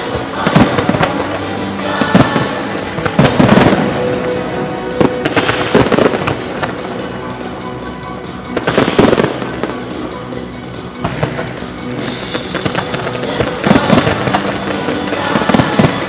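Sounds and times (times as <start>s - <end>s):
fireworks bangs with crackle: 0.0s - 7.6s, 8.4s - 10.2s, 10.8s - 16.0s
musical soundtrack with sustained tones: 0.0s - 16.0s.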